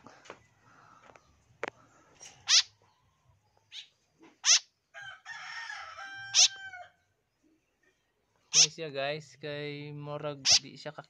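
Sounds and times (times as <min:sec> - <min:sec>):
loud high bird calls: 0:02.4 - 0:02.9, 0:03.7 - 0:04.8, 0:06.2 - 0:06.8, 0:08.5 - 0:08.7
rooster crowing: 0:04.9 - 0:07.0.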